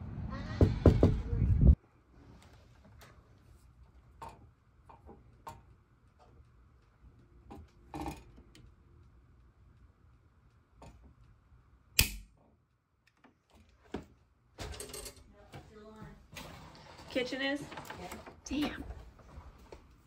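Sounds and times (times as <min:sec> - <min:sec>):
circuit breaker switches clicking: 0:12.0 - 0:12.3.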